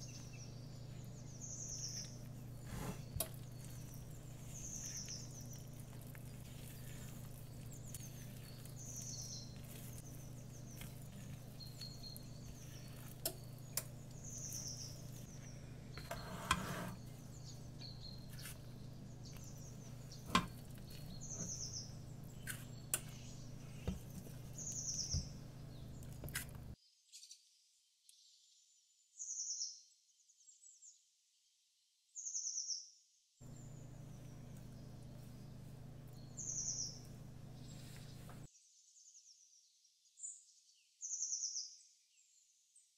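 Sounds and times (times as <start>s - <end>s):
birds chirping: 0.0s - 26.8s, 33.4s - 38.5s
low steady hum: 0.0s - 26.8s, 33.4s - 38.5s.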